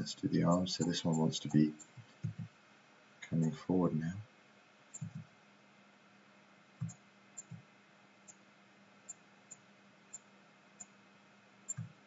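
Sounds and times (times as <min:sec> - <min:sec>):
computer mouse clicks: 0:05.0 - 0:05.2, 0:06.8 - 0:07.6, 0:11.7 - 0:12.0.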